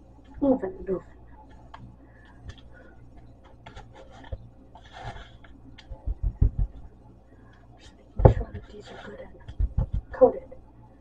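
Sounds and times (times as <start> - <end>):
dull thumps: 5.9 - 6.9, 8.2 - 8.7, 9.4 - 10.2.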